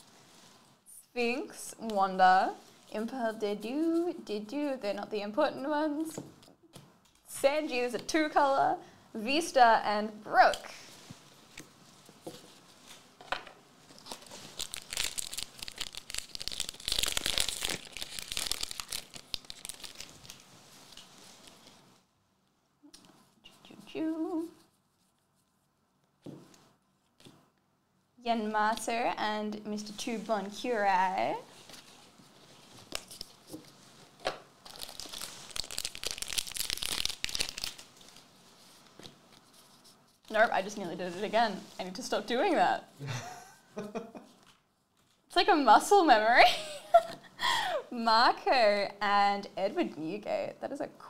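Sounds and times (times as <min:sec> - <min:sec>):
foil wrapper crinkling and tearing: 0:13.9 - 0:21.8, 0:34.6 - 0:38.4.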